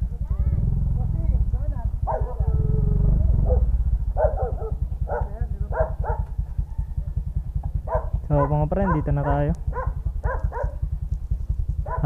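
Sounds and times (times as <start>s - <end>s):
motorcycle engine idling: 0.0s - 12.0s
dog barking: 2.0s - 7.0s, 7.8s - 10.9s.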